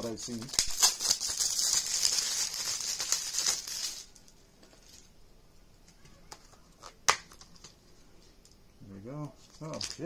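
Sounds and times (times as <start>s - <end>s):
plastic wrap crinkling and tearing: 0.0s - 4.2s.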